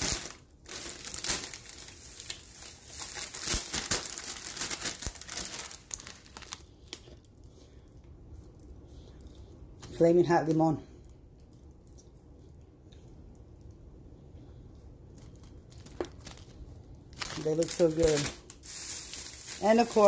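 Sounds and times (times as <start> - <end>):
plastic packaging rustling: 0.0 - 7.2, 15.0 - 20.0.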